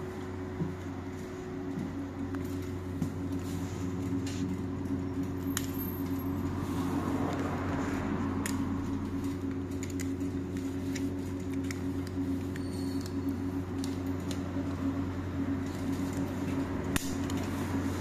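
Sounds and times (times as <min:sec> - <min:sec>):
bus cabin hum: 0:00.0 - 0:12.6.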